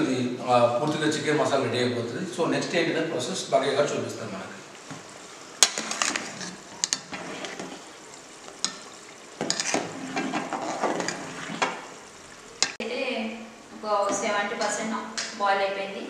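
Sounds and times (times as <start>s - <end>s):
rice boiling with bubbling hiss: 0.0s - 15.4s
ladle knocking and scraping pot: 5.6s - 7.8s, 8.5s - 11.8s.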